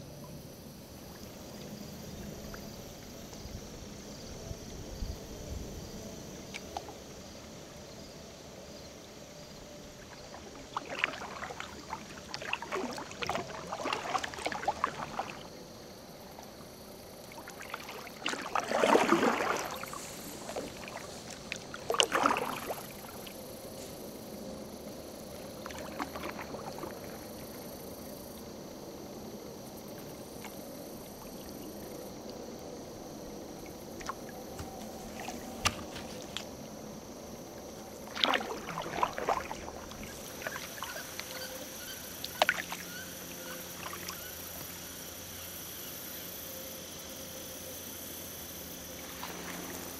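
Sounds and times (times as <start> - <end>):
kayak paddle splashes: 9.8 - 28.4, 29.8 - 45.6, 48.4 - 49.9.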